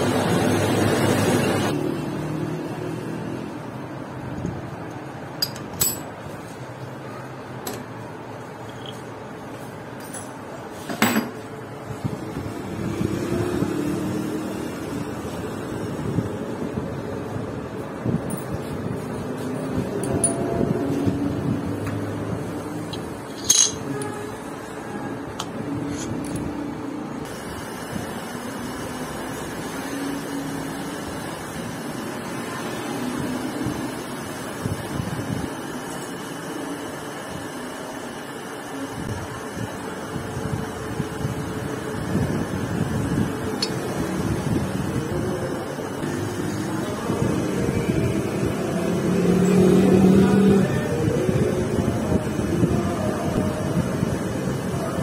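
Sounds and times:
steady low hum: 11.4s - 55.0s
metal parts clinking: 22.9s - 23.9s
machine motor humming: 39.6s - 55.0s.

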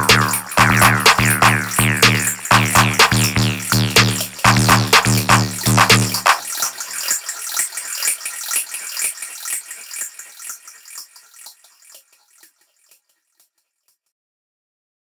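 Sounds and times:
techno hi-hats and percussion: 0.0s - 6.9s.

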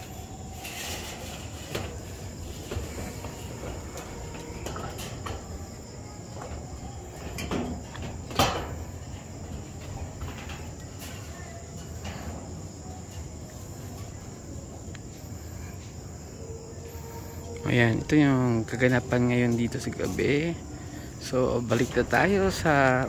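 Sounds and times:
crickets trilling: 0.0s - 23.0s
knocks and clatter: 6.4s - 12.5s.

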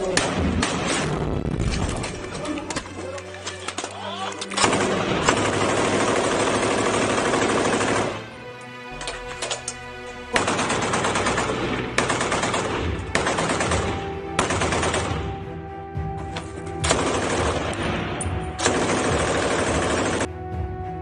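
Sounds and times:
rapid automatic gunfire: 4.6s - 8.2s, 10.4s - 15.2s, 16.9s - 17.7s, 18.6s - 20.3s.

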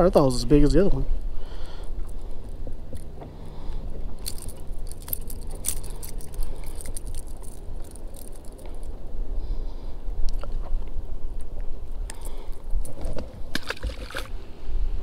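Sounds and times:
wind rumbling on microphone: 0.0s - 15.0s
fishing lure hooks rattling: 4.2s - 8.9s.

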